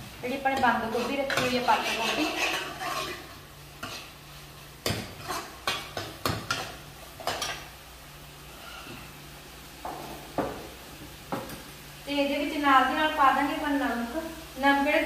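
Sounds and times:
vegetables sizzling: 0:00.0 - 0:15.0
ladle scraping a pan: 0:00.5 - 0:07.7.

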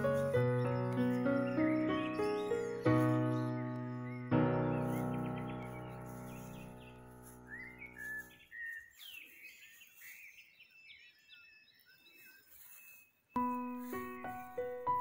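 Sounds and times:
small birds chirping: 0:00.0 - 0:15.0
music chord: 0:13.4 - 0:15.0.

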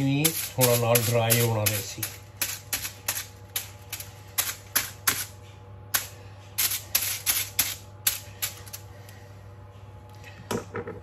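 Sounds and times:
knife punching aluminium foil: 0:00.0 - 0:08.8.

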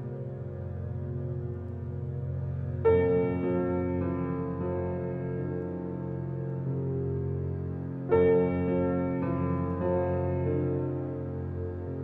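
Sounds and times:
slow ambient music: 0:00.0 - 0:12.0.

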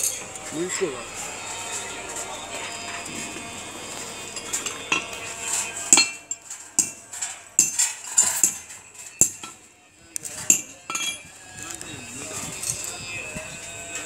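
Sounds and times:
metal bars clinking and tapped: 0:04.3 - 0:13.2.

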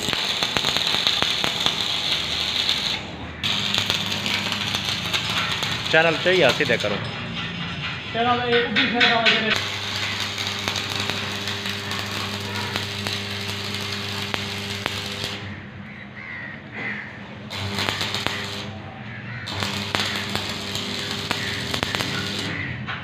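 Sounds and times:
welding arc crackling: 0:00.0 - 0:07.1, 0:09.5 - 0:15.7, 0:17.5 - 0:22.7
steady hum: 0:09.5 - 0:15.7.

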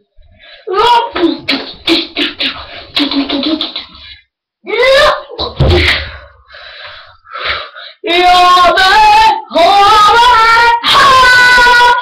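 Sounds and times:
boy singing high held notes: 0:08.0 - 0:12.0.

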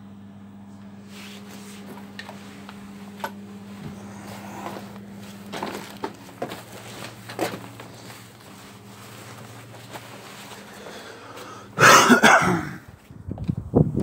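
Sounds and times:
person coughing: 0:11.7 - 0:12.9.

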